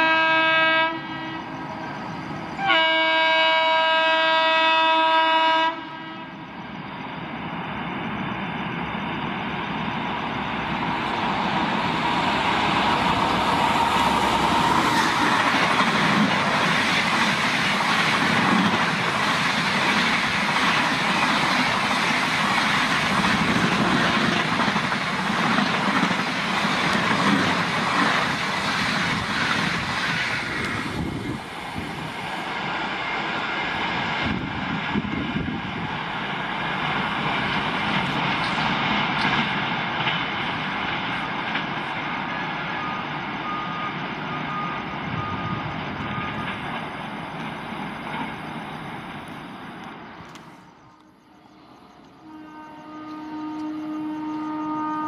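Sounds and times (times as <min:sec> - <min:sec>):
train horn blast: 0:00.0 - 0:01.6, 0:02.6 - 0:06.4, 0:23.8 - 0:24.5, 0:52.2 - 0:55.0
train wheels and air rushing: 0:06.4 - 0:52.3.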